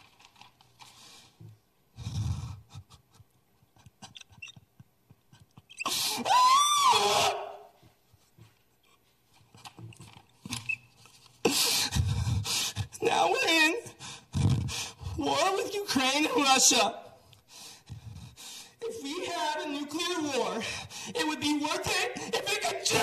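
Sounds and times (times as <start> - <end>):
man's high wailing cry: 6.2 - 7.7
faint breaths: 17.1 - 18.8.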